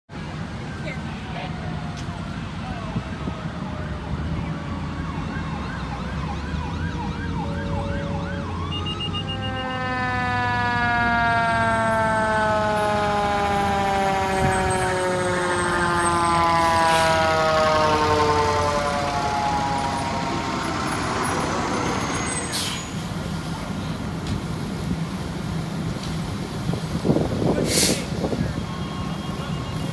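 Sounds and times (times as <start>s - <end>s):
fire engine siren: 0.2s - 29.9s
diesel engine rumble: 9.8s - 29.9s
short hisses: 27.6s - 28.2s.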